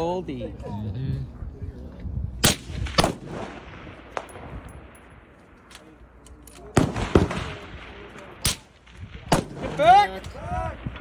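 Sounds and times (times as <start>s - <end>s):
rifle shots with echo: 2.4s - 11.0s.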